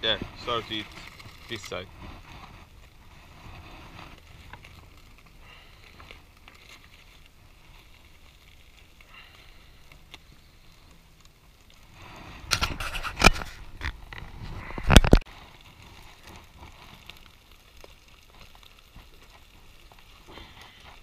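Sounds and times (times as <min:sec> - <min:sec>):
fork scraping aluminium foil: 0:12.4 - 0:13.8.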